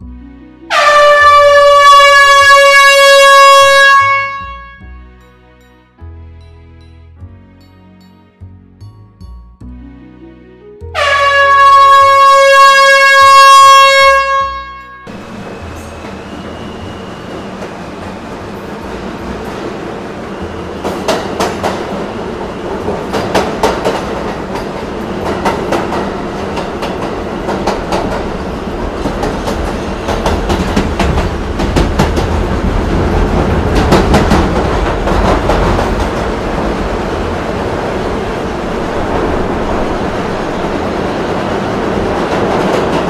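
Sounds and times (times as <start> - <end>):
train coaches rumbling: 15.1 - 43.0
wheels clacking over rail joints: 20.4 - 37.6.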